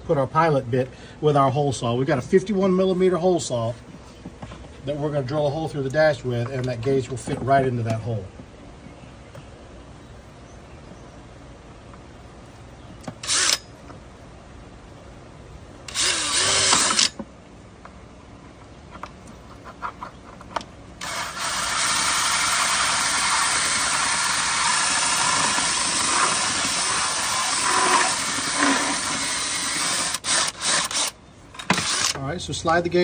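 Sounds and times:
power drill cutting plastic: 0:13.2 - 0:13.6, 0:15.9 - 0:17.2, 0:21.0 - 0:32.2.

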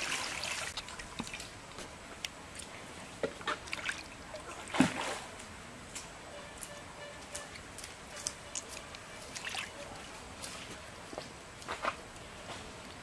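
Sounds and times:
hands washing fish splashing: 0:07.8 - 0:10.6.

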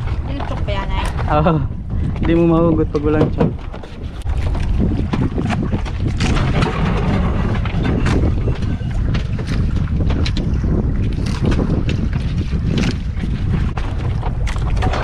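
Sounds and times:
water slapping against boat hull: 0:00.0 - 0:15.0
wind buffeting microphone: 0:00.0 - 0:15.0
short knocks: 0:02.2 - 0:03.9.

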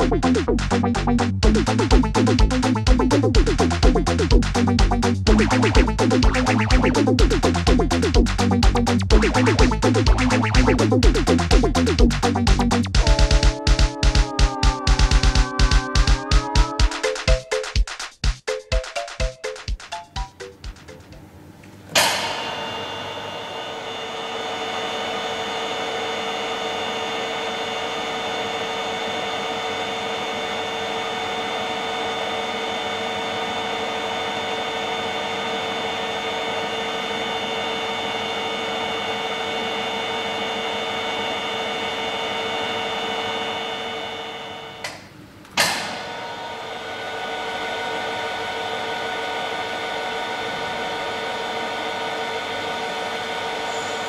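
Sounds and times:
sharp knock of drive starting: 0:22.0 - 0:23.7, 0:45.6 - 0:46.2.

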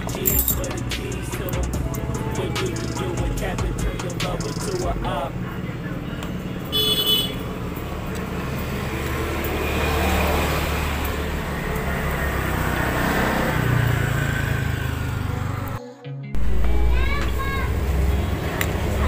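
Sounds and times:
vehicle engines droning: 0:00.0 - 0:15.8, 0:16.4 - 0:19.0.

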